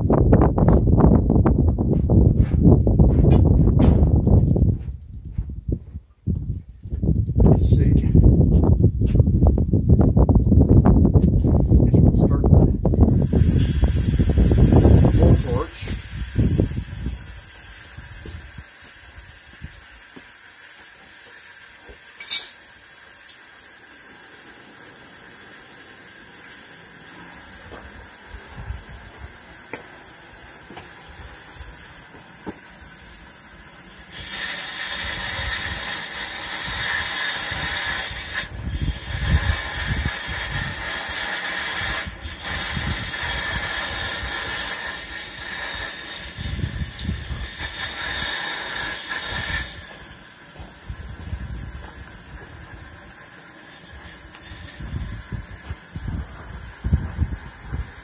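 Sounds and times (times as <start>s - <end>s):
compressed air hissing: 12.9s - 58.0s.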